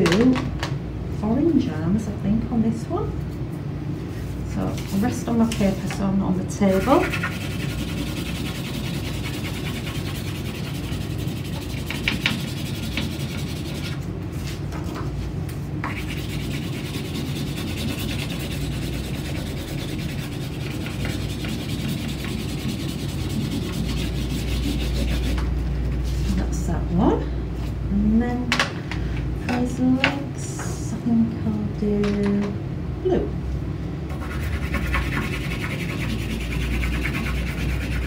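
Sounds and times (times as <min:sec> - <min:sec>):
crayon scribbling on card: 0:06.7 - 0:14.0, 0:15.8 - 0:26.1, 0:34.1 - 0:38.0.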